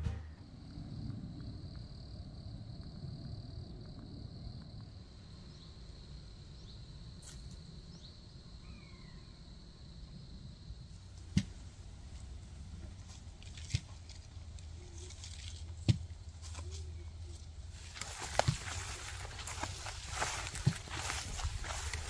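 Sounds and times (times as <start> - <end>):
low outdoor rumble: 0.0 - 22.0
faint bird chirps: 7.9 - 9.6.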